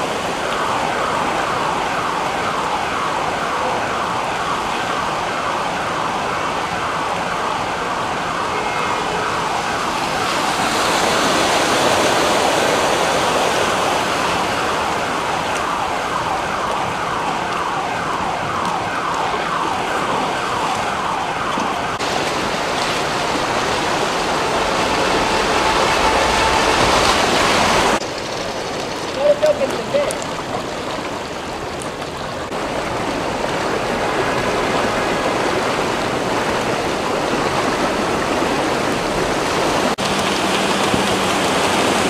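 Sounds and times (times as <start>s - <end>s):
emergency siren wailing: 0.0s - 28.0s
street noise: 0.0s - 42.0s
water rushing: 0.0s - 42.0s.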